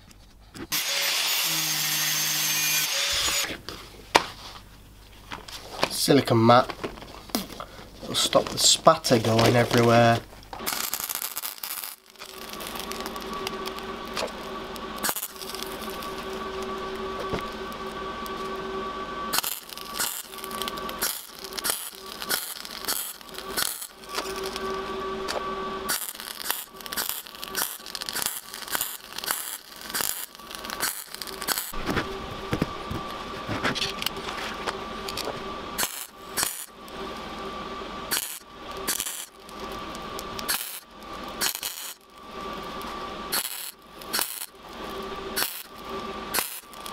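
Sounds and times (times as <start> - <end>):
faint welder whine: 0.0 - 46.9
welding arc crackling: 0.7 - 3.6, 7.3 - 33.4, 34.0 - 46.9.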